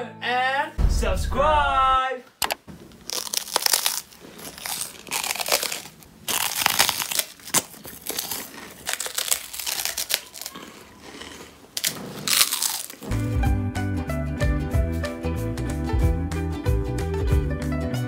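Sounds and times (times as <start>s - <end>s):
crunching snack sticks: 3.0s - 13.4s.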